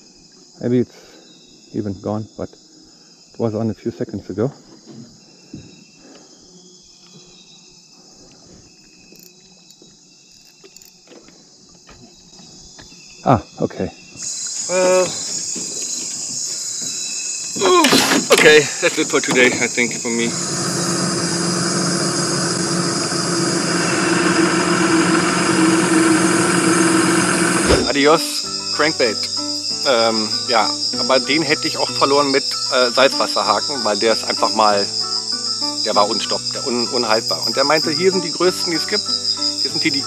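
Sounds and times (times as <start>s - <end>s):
insects chirring: 0.0s - 40.0s
boat motor humming: 18.2s - 40.0s.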